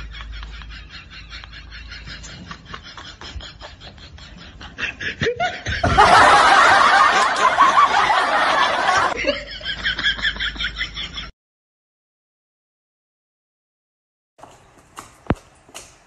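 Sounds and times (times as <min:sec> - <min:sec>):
people laughing: 0:00.0 - 0:11.3.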